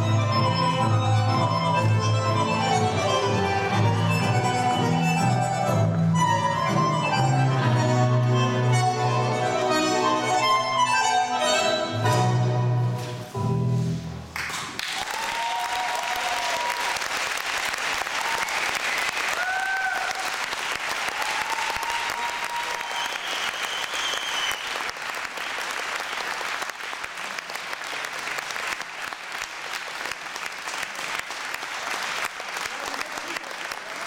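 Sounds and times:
violin and accordion music: 0.0s - 12.9s
audience applauding: 14.4s - 34.0s
people cheering: 14.8s - 26.0s.

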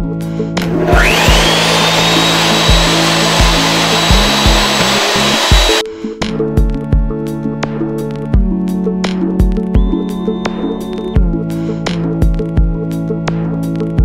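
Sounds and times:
background music with steady beat: 0.0s - 14.0s
router spindle motor whining: 0.6s - 5.8s.

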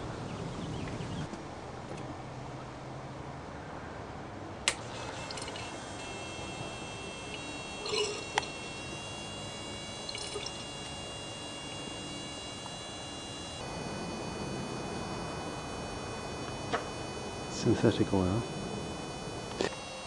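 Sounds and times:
oil trickling through lines: 4.7s - 13.8s
electric oil pump running: 4.7s - 20.0s.

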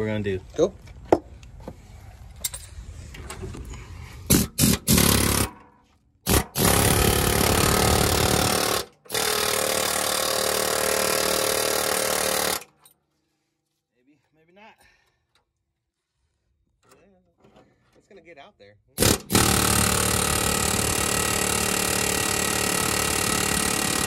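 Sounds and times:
air hammer rattling: 19.0s - 24.0s.

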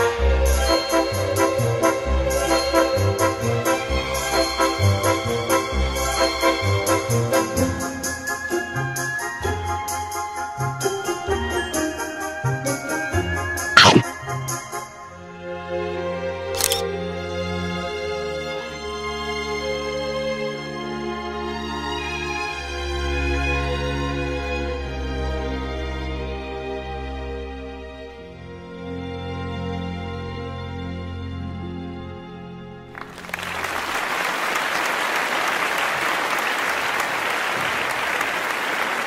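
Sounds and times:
applause: 32.9s - 39.0s.

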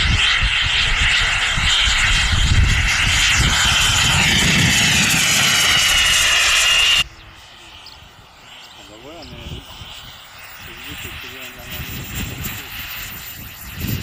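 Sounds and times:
hiss: 0.0s - 7.0s
model aircraft engine whine: 0.0s - 14.0s.

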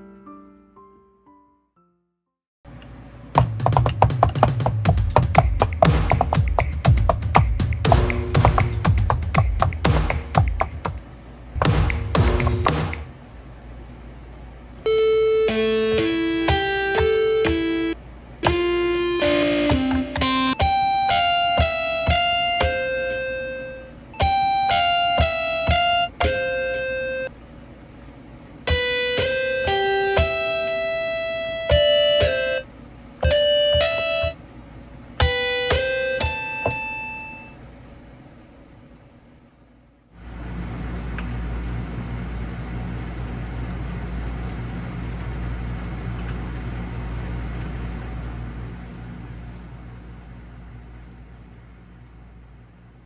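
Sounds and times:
steady hiss with low hum: 2.7s - 53.0s
plucked guitar-like melody: 14.9s - 23.4s, 24.2s - 27.2s.

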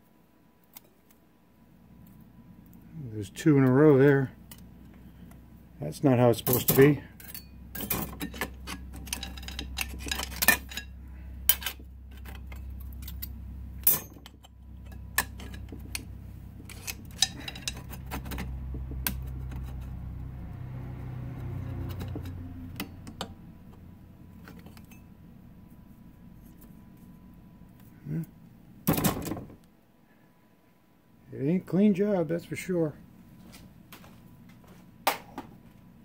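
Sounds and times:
low steady hum: 0.0s - 36.0s
metal clutch discs clinking and scraping: 6.4s - 23.0s.

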